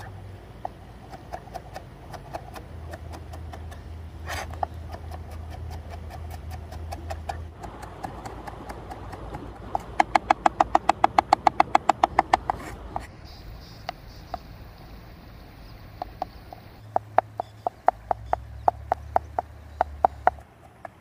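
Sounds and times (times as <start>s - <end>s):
knife chopping on plastic board: 1.1s - 3.8s, 4.5s - 13.1s.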